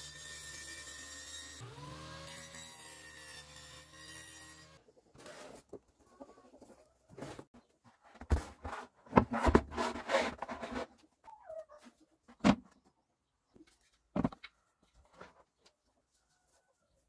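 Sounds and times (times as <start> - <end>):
plastic bucket knocks and handling: 14.1 - 14.5.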